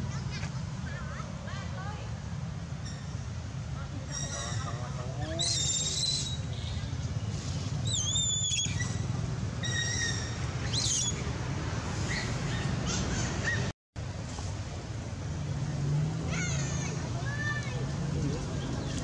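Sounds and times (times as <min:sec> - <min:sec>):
high whistled bird calls: 0:05.4 - 0:06.6, 0:07.8 - 0:09.0, 0:09.6 - 0:11.2.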